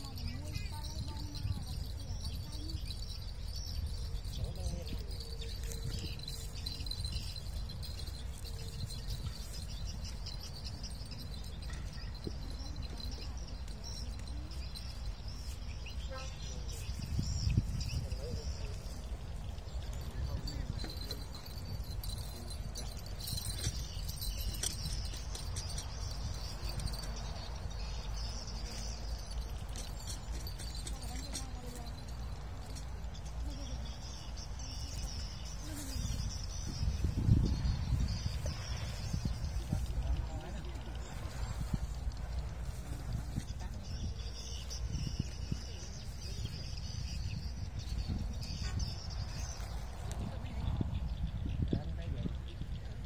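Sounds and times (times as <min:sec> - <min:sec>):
faint high chirping: 0:00.0 - 0:53.0
wind rumbling on microphone: 0:00.0 - 0:53.0.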